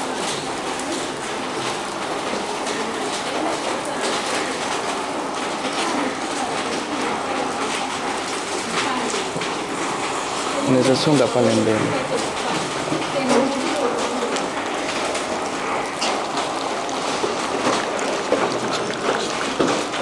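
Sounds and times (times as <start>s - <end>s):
faint murmur of voices: 0.0s - 15.9s
rain falling and dripping: 0.0s - 20.0s.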